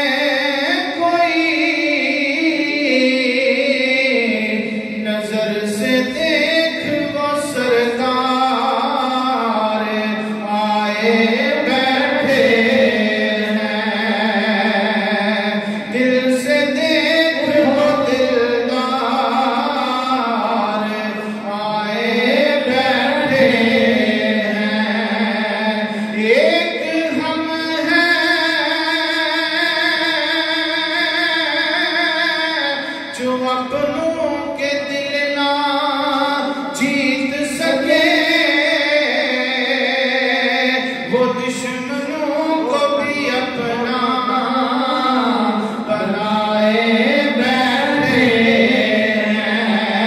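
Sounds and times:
man chanting: 0:00.0 - 0:50.0.

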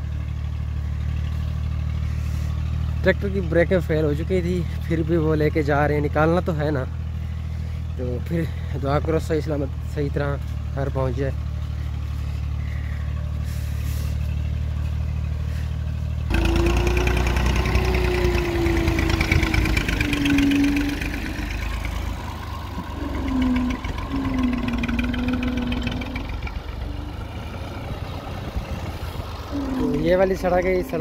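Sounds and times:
tractor diesel engine under load: 0:00.0 - 0:31.0
wavering engine whine: 0:11.1 - 0:31.0.

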